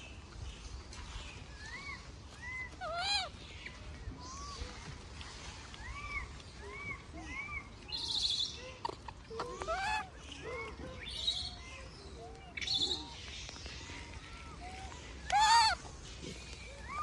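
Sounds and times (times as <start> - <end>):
baby monkey coo calls: 2.4 - 3.3, 5.9 - 11.6, 14.5 - 15.9.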